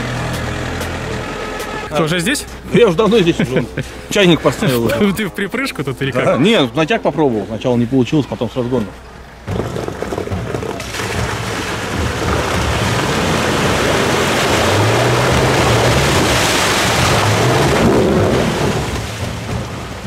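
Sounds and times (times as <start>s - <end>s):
engine revving under load: 0.0s - 2.7s, 8.7s - 20.0s
tyres churning through slush: 2.0s - 20.0s.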